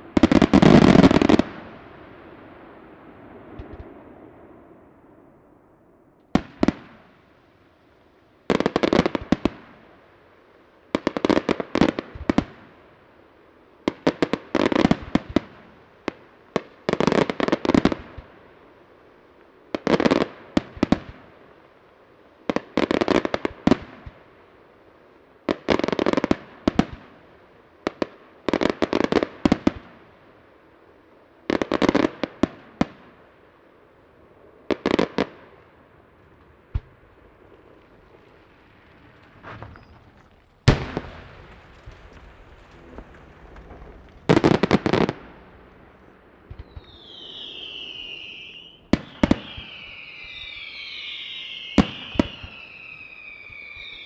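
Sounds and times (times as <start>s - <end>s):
firework shells bursting: 35.6s - 54.0s.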